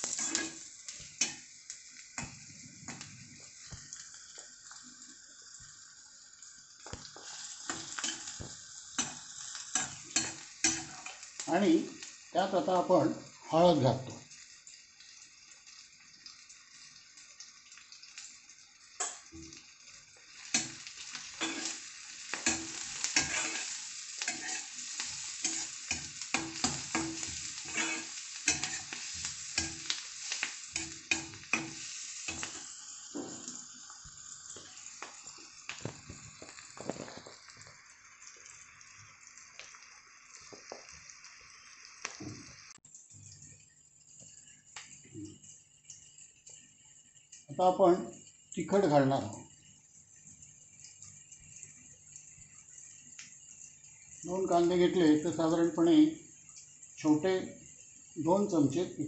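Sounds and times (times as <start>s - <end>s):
spatula scraping metal pan: 0.0s - 1.4s, 7.2s - 8.4s, 9.0s - 11.2s, 20.5s - 32.7s
onions sizzling in oil: 0.0s - 59.0s.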